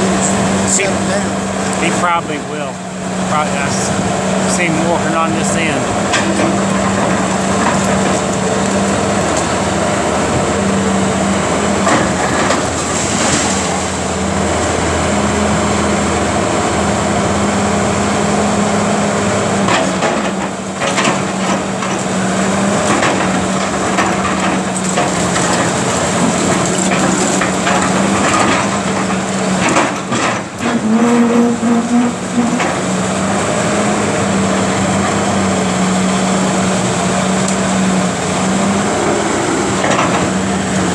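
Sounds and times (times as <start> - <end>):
excavator diesel engine running: 0.0 - 40.9
debris cracking and knocking: 22.7 - 31.0.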